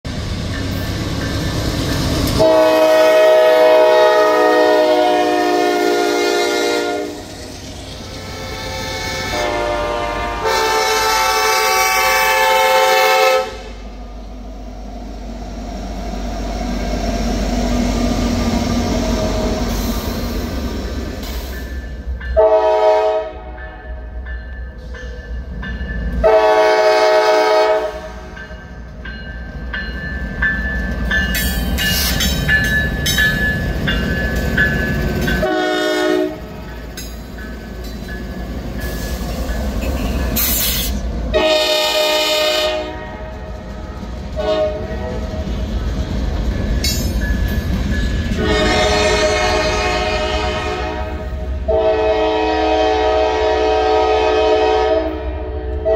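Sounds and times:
freight train rumbling by: 0.0s - 55.9s
train horn blasts: 2.4s - 7.4s, 8.2s - 13.9s, 22.4s - 24.0s, 26.2s - 28.4s, 35.4s - 36.6s, 41.3s - 45.6s, 48.3s - 55.9s.

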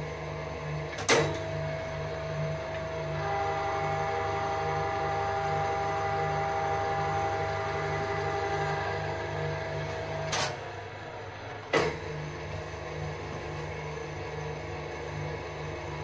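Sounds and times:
milling machine humming: 0.0s - 16.0s
steady machine whine: 0.0s - 16.0s.

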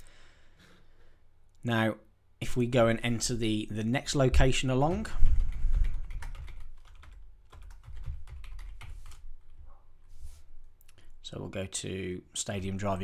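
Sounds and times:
typing on computer keyboard: 4.9s - 9.2s.

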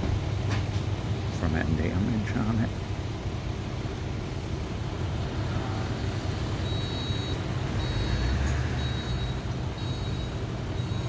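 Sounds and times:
truck engine idling: 0.0s - 11.0s
high-pitched beep: 6.6s - 11.0s.

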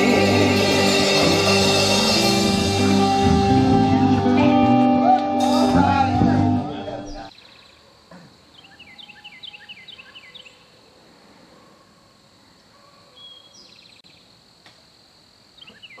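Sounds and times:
high-pitched drone: 0.0s - 7.3s
bird chirping: 6.6s - 10.9s, 12.8s - 14.3s, 15.6s - 16.0s.

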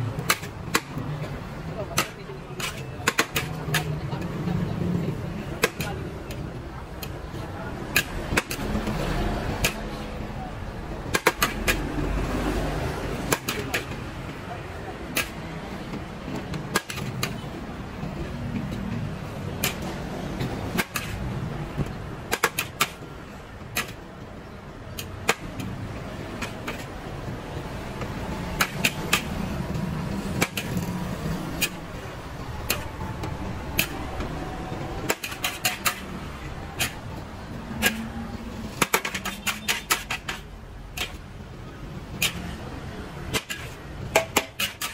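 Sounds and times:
metal spatula scraping a wok: 44.6s - 44.9s.

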